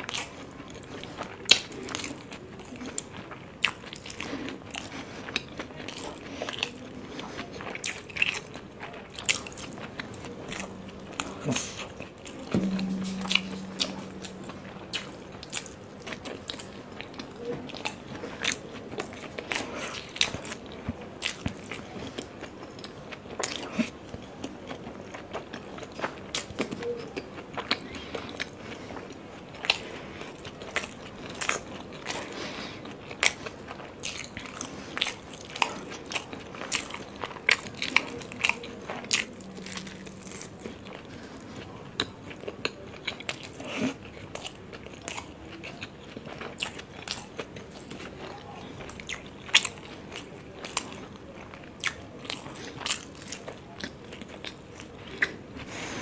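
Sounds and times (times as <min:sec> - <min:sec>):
mouth chewing clicks and smacks: 0:41.9 - 0:55.4.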